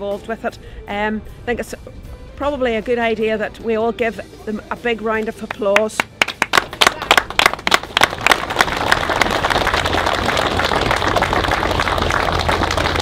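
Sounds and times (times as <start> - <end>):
crowd applauding: 6.2 - 13.0.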